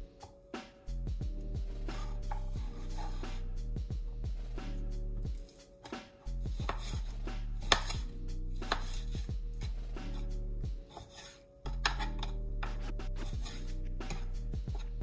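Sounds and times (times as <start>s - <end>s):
knife chopping on cutting board: 1.9s - 3.4s, 5.8s - 10.3s, 10.9s - 15.0s.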